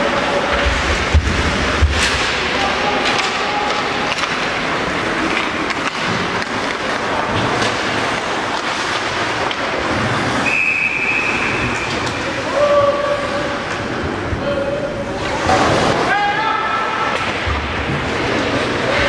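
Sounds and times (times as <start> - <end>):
sticks and puck clacking: 0.0 - 14.1, 17.0 - 19.0
crowd noise: 0.0 - 19.0
skating: 0.0 - 19.0
referee's whistle: 10.4 - 12.0.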